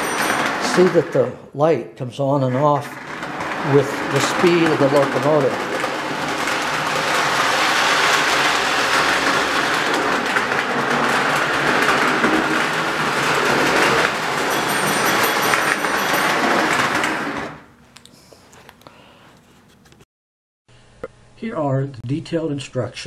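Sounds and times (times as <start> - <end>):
toy train rattling on metal track: 0.0 - 1.3, 2.6 - 17.7.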